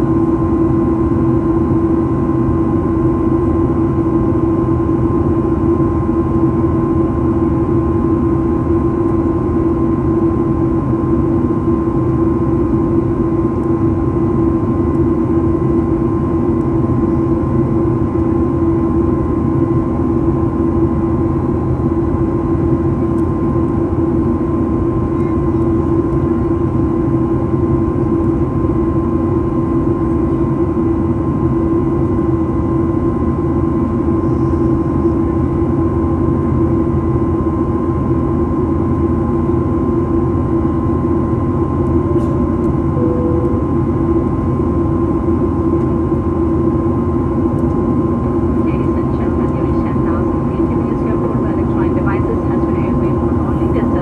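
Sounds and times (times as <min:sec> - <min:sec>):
low engine hum: 0:02.9 - 0:54.0
airliner cabin rumble: 0:08.9 - 0:37.9, 0:38.5 - 0:54.0
higher engine hum: 0:42.1 - 0:45.4.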